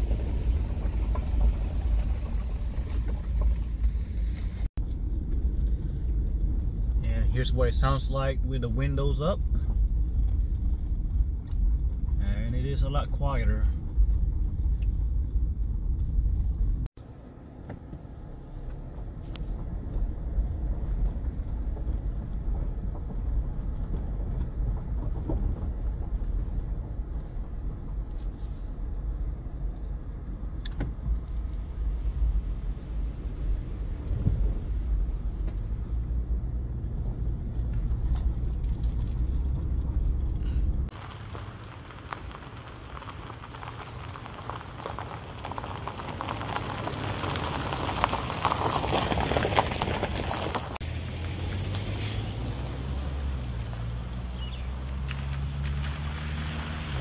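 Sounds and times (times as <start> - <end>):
engine and road rumble inside car: 0.0 - 57.0.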